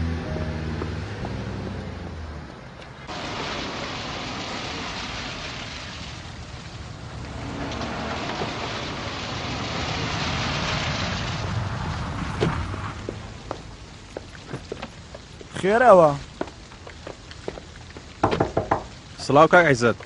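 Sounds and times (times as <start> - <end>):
car driving on wet ground: 0.0 - 17.8
music: 0.1 - 1.9
rain on wet pavement: 3.1 - 20.0.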